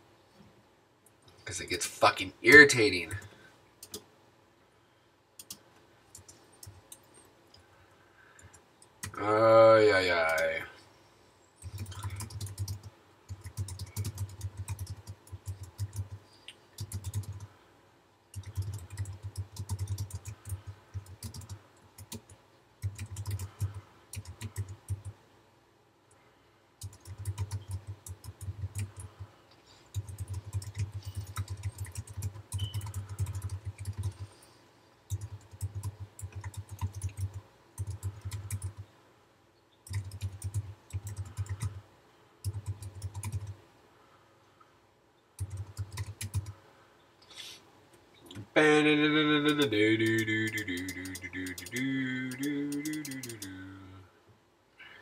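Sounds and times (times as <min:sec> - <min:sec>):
typing on computer keyboard: 0:03.1 - 0:04.0, 0:11.6 - 0:16.2, 0:16.8 - 0:17.5, 0:18.3 - 0:25.2, 0:26.8 - 0:29.3, 0:29.9 - 0:34.4, 0:35.1 - 0:38.8, 0:39.8 - 0:41.8, 0:42.4 - 0:43.6, 0:45.4 - 0:46.6, 0:49.5 - 0:53.6.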